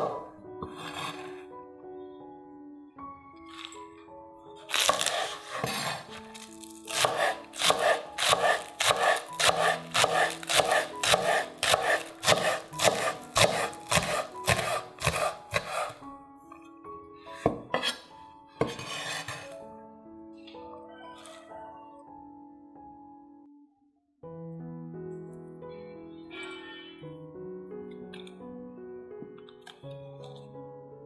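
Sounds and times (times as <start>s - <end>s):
knife chopping on wooden board: 0.0s - 1.2s, 4.7s - 16.0s
soft background music: 0.0s - 31.0s.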